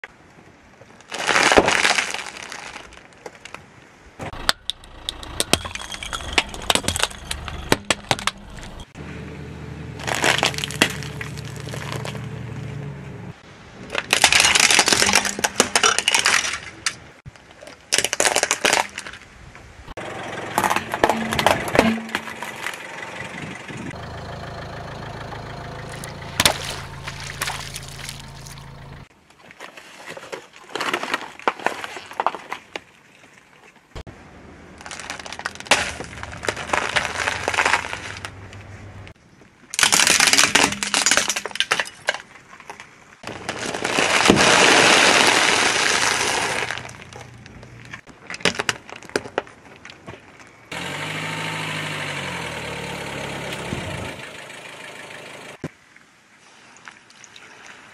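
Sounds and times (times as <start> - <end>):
car engine idling: 4.3 - 13.4, 20.0 - 29.1, 50.7 - 55.6
crackling and snapping: 10.0 - 12.3, 13.9 - 19.3, 34.8 - 38.7
tyre crushing objects: 10.0 - 12.3
water balloons popping: 25.9 - 28.7.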